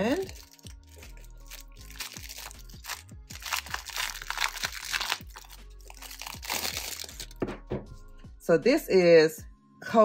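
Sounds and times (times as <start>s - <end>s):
cellophane wrap crinkling: 0.0s - 7.5s
background music: 0.0s - 10.0s.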